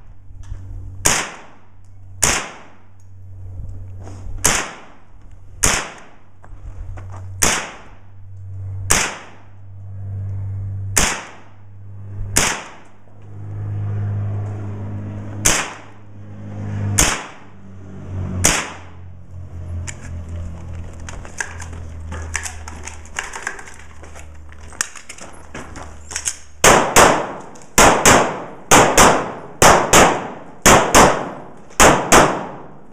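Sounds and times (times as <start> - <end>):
low steady hum: 0.0 - 32.9
rifle shots: 1.0 - 2.8, 4.4 - 5.0, 5.6 - 6.2, 7.4 - 8.0, 8.9 - 9.5, 11.0 - 11.6, 12.3 - 12.9, 15.4 - 16.0, 17.0 - 17.4, 18.4 - 19.0, 26.6 - 32.8.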